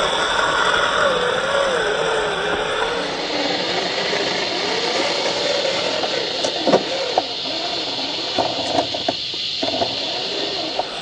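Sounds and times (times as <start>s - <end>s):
electric motor whining: 0.0s - 11.0s
sharp clicks and knocks: 8.3s - 10.1s.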